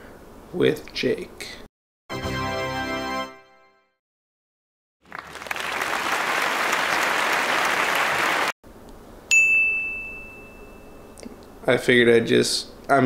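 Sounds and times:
applause: 5.0s - 8.6s
bell ding ringing: 9.3s - 11.2s.

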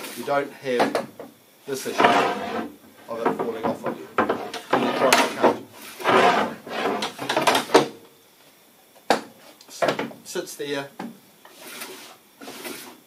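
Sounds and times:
wooden sled scraping on table saw: 1.7s - 7.7s.

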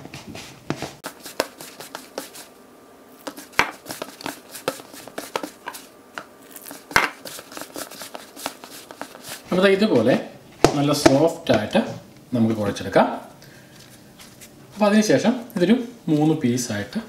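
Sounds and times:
hand kneading dough: 0.0s - 2.6s, 3.2s - 11.9s.

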